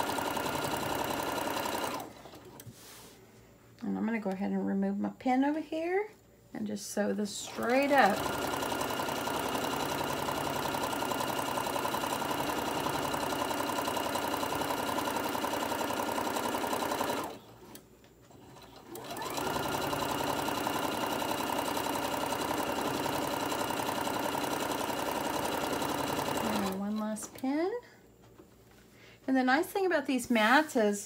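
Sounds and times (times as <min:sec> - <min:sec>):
sewing machine stitching: 0:00.0 - 0:02.6, 0:07.4 - 0:27.4.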